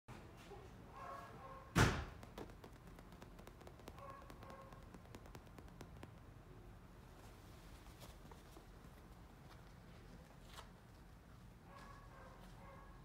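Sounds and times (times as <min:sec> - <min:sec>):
loud thump: 0:01.8 - 0:02.4
paws clicking on leather sofa: 0:02.2 - 0:06.3.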